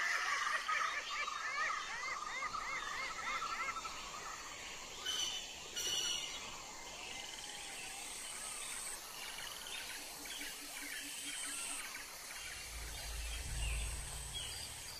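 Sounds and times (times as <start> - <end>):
birds calling and chirping: 0.0 - 14.9
high insect buzz: 11.3 - 14.9.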